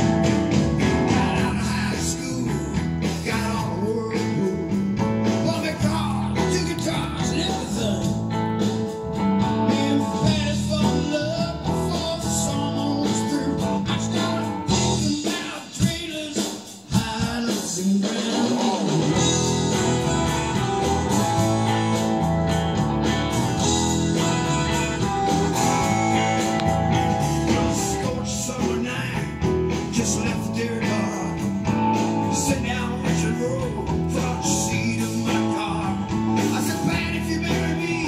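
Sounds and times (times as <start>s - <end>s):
bass guitar: 0.0s - 38.0s
drums: 0.0s - 38.0s
electric guitars: 0.0s - 38.0s
person singing: 0.9s - 8.3s, 9.4s - 22.4s, 23.6s - 38.0s.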